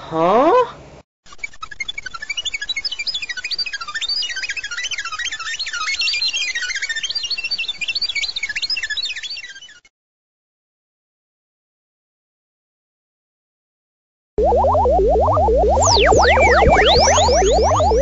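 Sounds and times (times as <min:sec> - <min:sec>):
warbling electronic beeps: 0:14.4 - 0:18.0.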